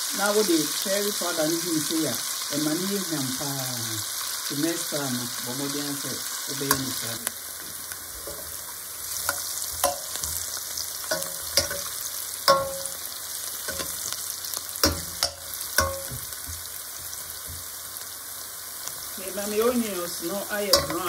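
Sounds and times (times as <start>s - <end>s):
onions sizzling in oil: 0.0s - 21.0s
metal spoon clinking against pot: 9.3s - 10.2s, 11.1s - 13.0s, 13.6s - 14.1s, 14.8s - 16.2s, 20.7s - 21.0s.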